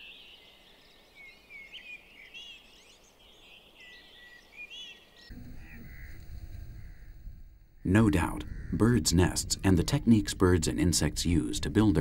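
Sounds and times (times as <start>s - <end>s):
birds chirping and whistling: 1.2s - 10.7s.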